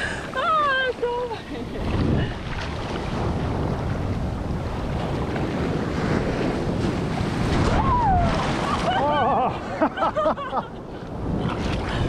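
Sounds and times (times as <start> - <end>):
ocean surf washing on beach: 0.0 - 12.0
wind buffeting microphone: 0.0 - 12.0.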